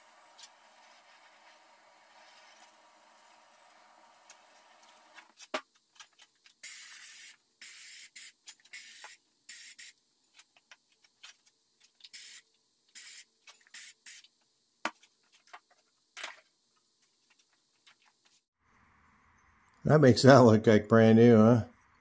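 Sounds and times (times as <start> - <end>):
powder coating gun air hisses: 6.6 - 10.0, 12.1 - 14.3.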